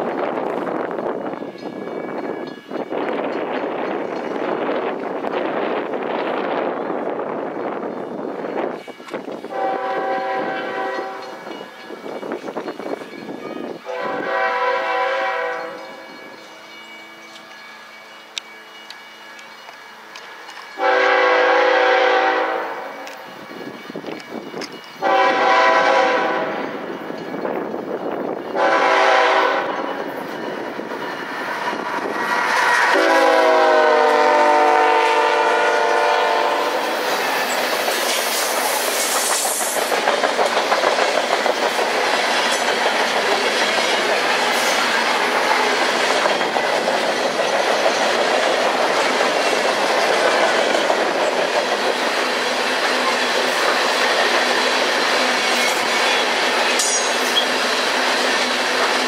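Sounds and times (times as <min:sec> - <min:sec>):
freight cars rumbling on rails: 0:00.0 - 0:17.6, 0:19.4 - 0:59.0
wheels clickety-clack on rail joints: 0:00.0 - 0:33.8, 0:35.4 - 0:59.0
locomotive horn blasts: 0:09.5 - 0:11.4, 0:13.9 - 0:16.1, 0:20.8 - 0:23.0, 0:25.0 - 0:26.8, 0:28.6 - 0:29.9, 0:32.9 - 0:37.0.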